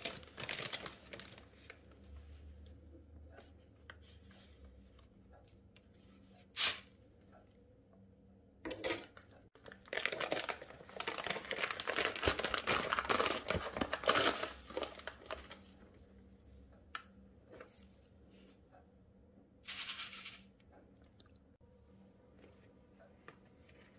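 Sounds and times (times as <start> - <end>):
packet crinkling and tearing: 0.0 - 1.5, 9.5 - 15.7
plastic bag rustling: 0.0 - 2.0, 9.5 - 15.8.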